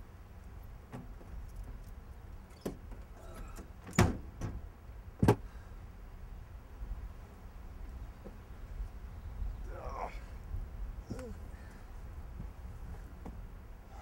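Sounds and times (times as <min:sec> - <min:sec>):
car door clunks: 0:05.2 - 0:05.4.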